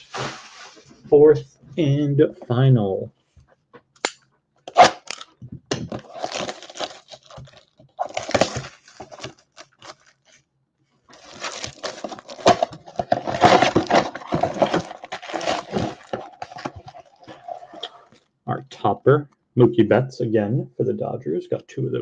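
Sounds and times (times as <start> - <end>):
shrink wrap crinkling and tearing: 4.7 - 10.4, 11.1 - 18.2.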